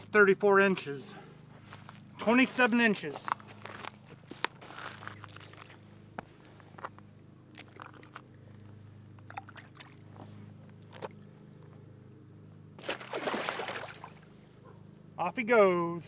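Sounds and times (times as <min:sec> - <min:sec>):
fish splashing loudly: 0:07.5 - 0:08.4, 0:09.3 - 0:10.0, 0:12.8 - 0:14.3
small water splashes and drips: 0:07.5 - 0:10.1, 0:10.7 - 0:11.2, 0:12.8 - 0:14.3.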